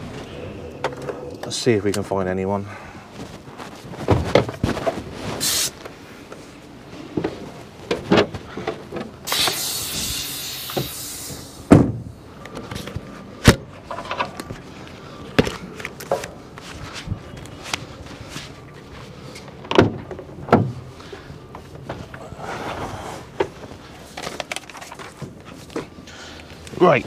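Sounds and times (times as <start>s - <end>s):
hissing rush: 9.2s - 11.7s.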